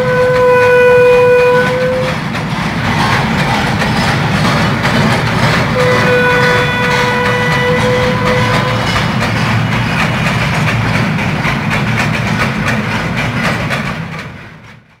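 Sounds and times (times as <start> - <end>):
low train rumble: 0.0 - 15.0
train wheels clacking over rail joints: 0.0 - 15.0.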